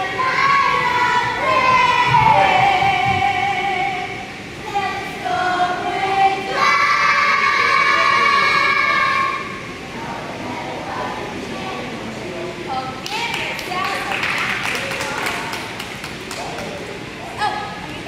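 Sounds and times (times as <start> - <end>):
children and women singing: 0.0 - 9.7.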